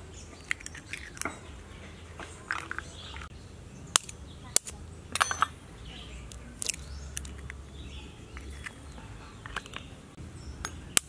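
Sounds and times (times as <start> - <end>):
eggshell cracking: 0.4 - 1.4, 6.6 - 7.6.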